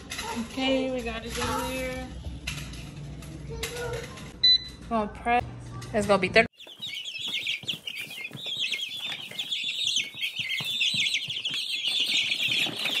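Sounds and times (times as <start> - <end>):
small birds chirping: 6.5 - 13.0.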